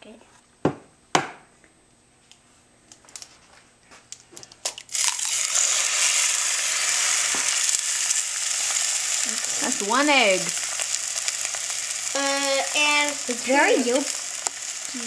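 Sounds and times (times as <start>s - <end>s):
egg sizzling in frying pan: 4.7s - 15.0s.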